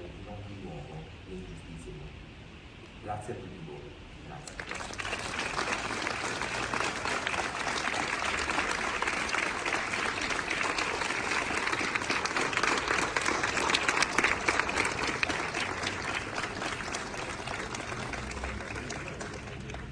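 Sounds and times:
crowd applauding: 4.5s - 19.9s.

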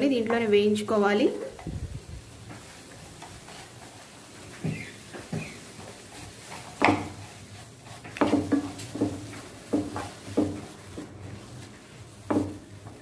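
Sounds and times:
leaves frying: 0.0s - 13.0s
spatula knocking on frying pan: 4.6s - 7.3s, 8.0s - 11.2s, 12.2s - 13.0s.

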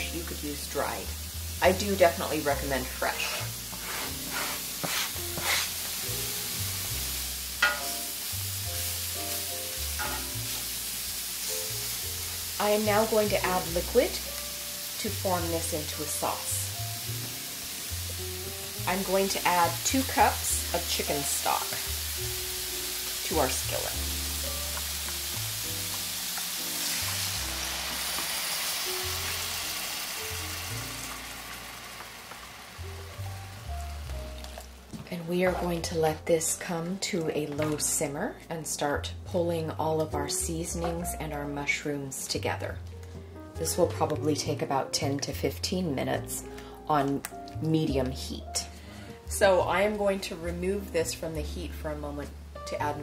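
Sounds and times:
mushrooms sizzling in a skillet: 0.0s - 38.8s
soft background music: 0.0s - 53.0s
wooden spatula stirring: 3.2s - 5.7s.

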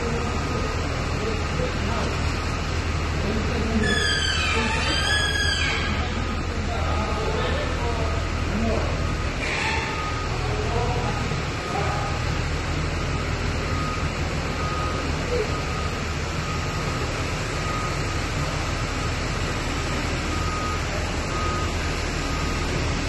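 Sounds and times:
factory machinery drone: 0.0s - 23.0s.

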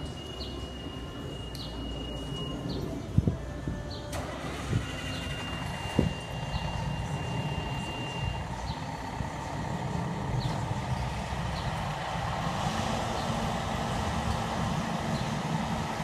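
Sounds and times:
steady high tone: 0.0s - 4.0s, 4.7s - 12.4s
diesel engines idling: 0.0s - 16.0s.

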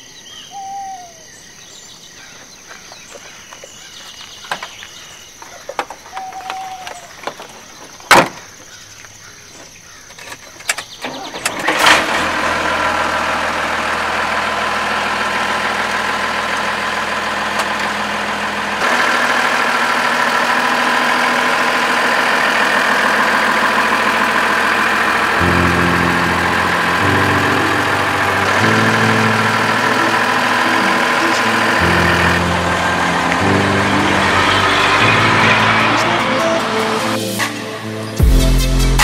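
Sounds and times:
diesel engine starting and idling: 9.9s - 39.0s.

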